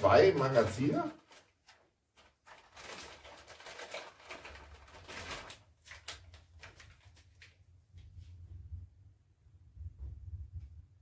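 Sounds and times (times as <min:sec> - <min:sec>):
plastic packaging crinkling: 0:00.0 - 0:07.5.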